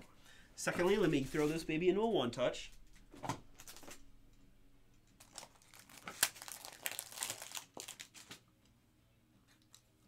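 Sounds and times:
plastic crinkling and rustling: 3.1s - 4.0s, 5.1s - 8.5s.

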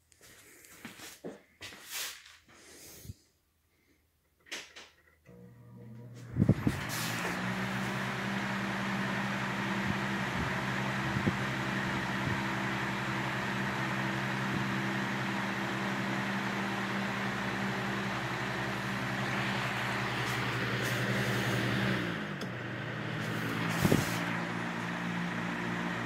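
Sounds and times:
electric fan motor hum: 5.3s - 26.0s
rush of air from fan blades: 6.2s - 26.0s.

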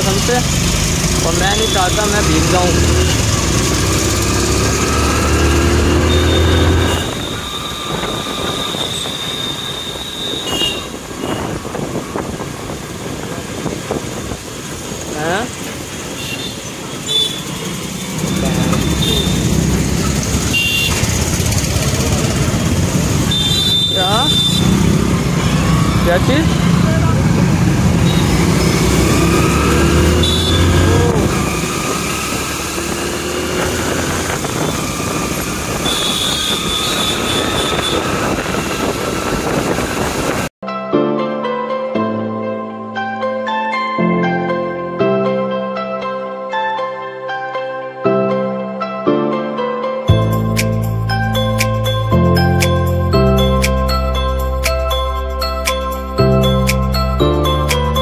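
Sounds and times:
wind road and rain rumble: 6.9s - 23.3s, 24.7s - 40.5s.

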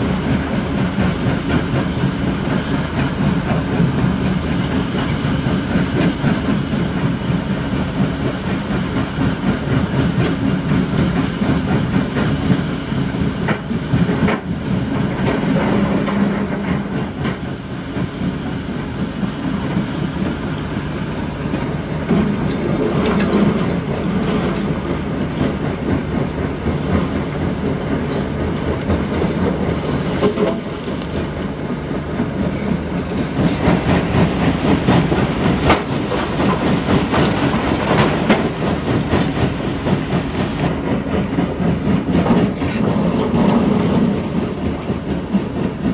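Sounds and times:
excavator diesel engine: 0.0s - 45.9s.

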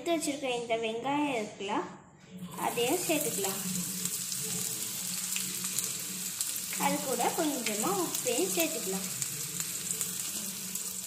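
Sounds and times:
onions sizzling in oil: 2.5s - 11.0s.

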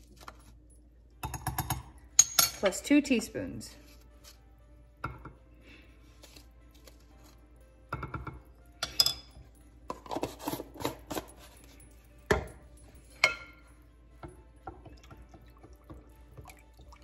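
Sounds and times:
metal spoon clinking: 1.2s - 2.9s, 7.9s - 15.0s.

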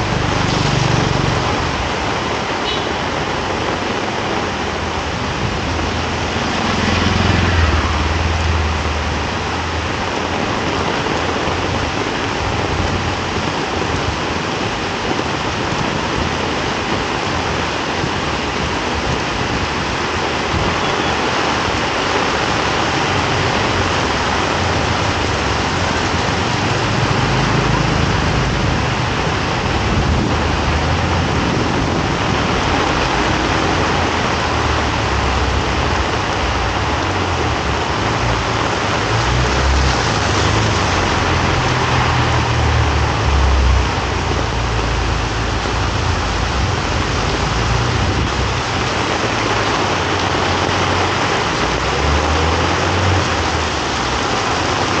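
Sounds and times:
heavy rain on wet street: 0.0s - 55.0s
passing vehicle engine rumble: 4.5s - 13.4s, 21.6s - 55.0s.

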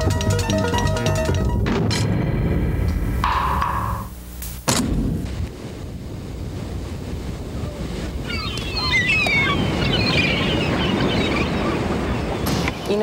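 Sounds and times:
wind: 4.6s - 13.0s.

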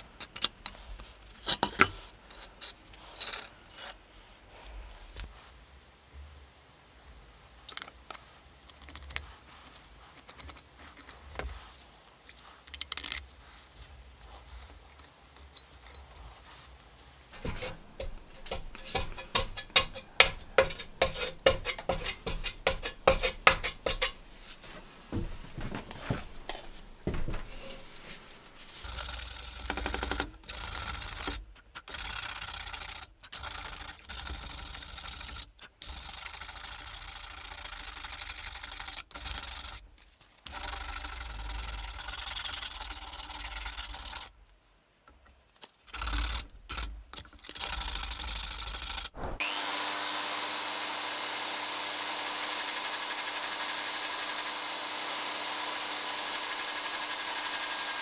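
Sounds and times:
spreader scraping filler on metal: 17.4s - 28.9s
hand sanding metal: 17.4s - 29.3s.

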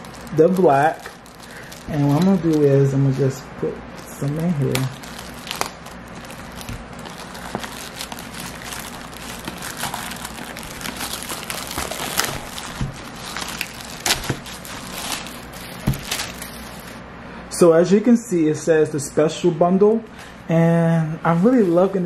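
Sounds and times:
knife slitting plastic wrap: 0.0s - 2.8s, 4.2s - 17.0s
plastic wrap tearing and crinkling: 0.0s - 2.9s, 4.0s - 17.0s.

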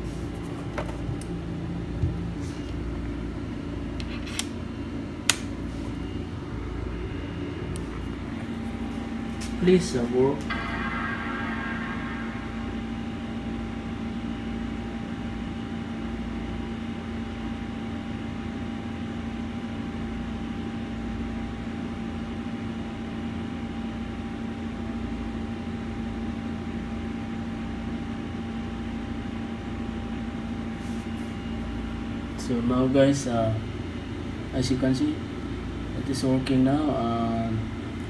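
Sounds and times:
mechanical hum: 0.0s - 38.0s.

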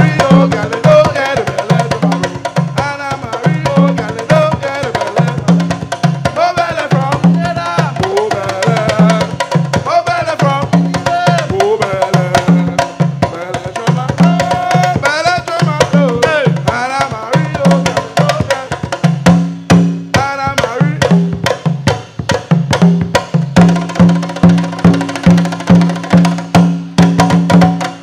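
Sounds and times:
voices singing: 0.0s - 21.5s
hand drums playing fast rhythm: 0.0s - 28.0s.

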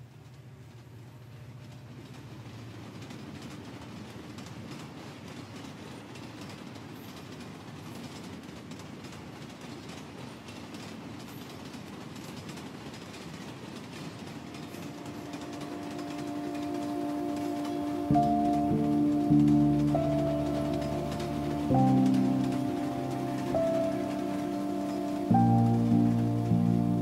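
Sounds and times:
subway train rumbling: 0.0s - 27.0s
wheels clicking on track: 0.0s - 27.0s.

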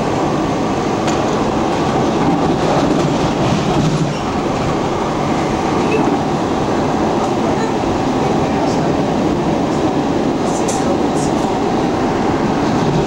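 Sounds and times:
train wheels on rail: 0.0s - 13.0s.

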